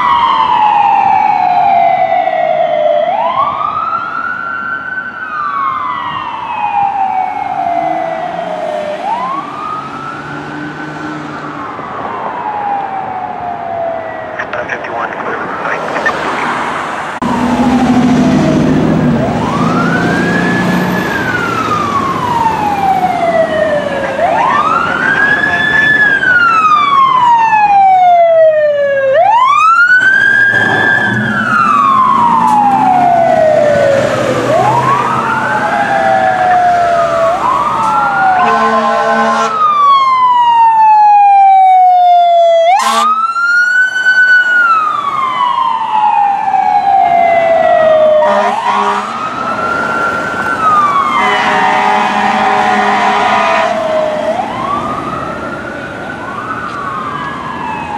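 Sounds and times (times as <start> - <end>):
higher siren: 0.0 - 57.9
wailing siren: 0.0 - 57.9
vehicle horn blasts: 38.4 - 39.6, 48.3 - 49.1, 51.2 - 53.8.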